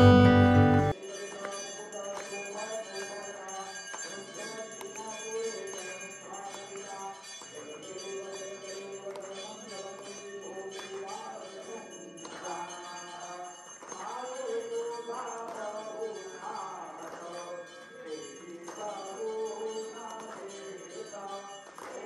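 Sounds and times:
temple bells ringing: 0.0s - 21.8s.

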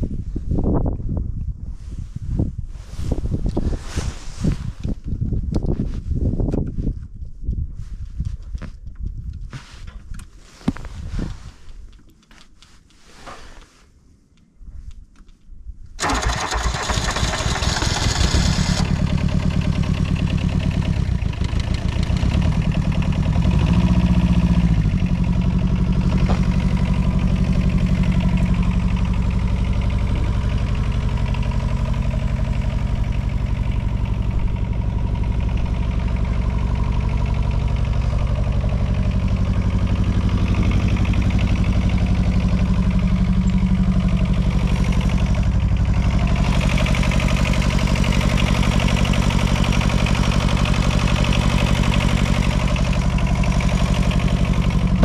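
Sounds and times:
small engine idling: 16.0s - 55.0s.

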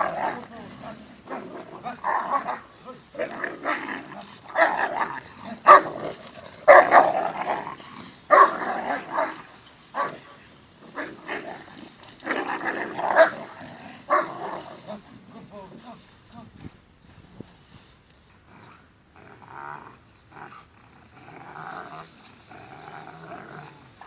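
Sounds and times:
dog growling: 0.0s - 15.3s, 18.4s - 24.0s
dog barking aggressively: 1.3s - 3.9s, 4.5s - 7.7s, 8.3s - 10.3s, 12.3s - 14.6s.

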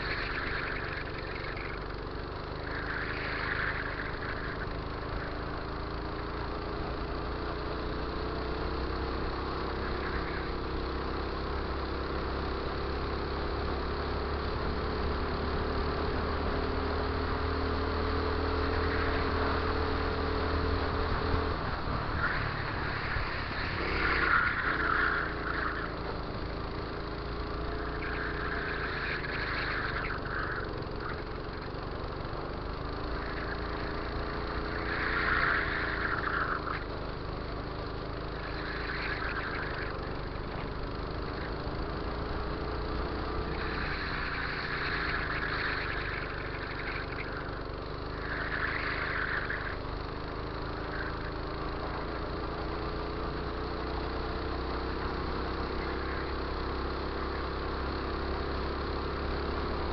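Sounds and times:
go-kart engine accelerating: 0.0s - 59.9s.

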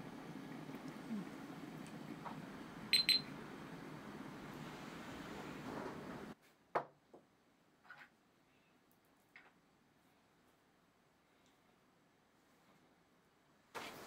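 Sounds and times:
kitchen timer beeps: 2.9s - 3.3s.

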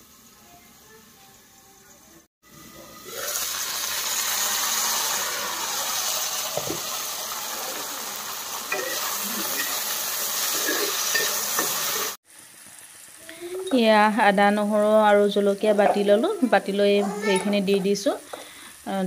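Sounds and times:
vegetables sizzling in hot oil: 2.6s - 19.0s
spatula scraping a pan: 8.7s - 12.2s.

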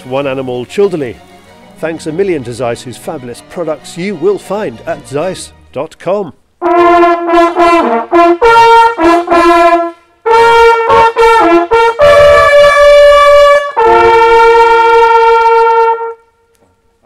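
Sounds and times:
hunting horns blowing a fanfare: 6.6s - 16.5s.

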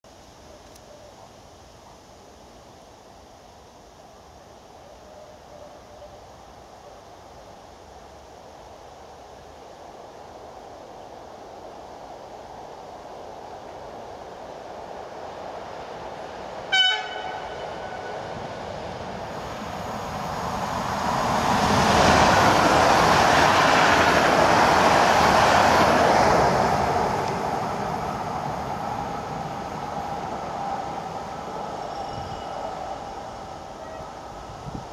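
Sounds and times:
train wheels rumbling on rails: 13.0s - 34.9s
train horn toot: 16.7s - 18.3s, 33.8s - 34.2s
faint whine: 28.3s - 34.9s.

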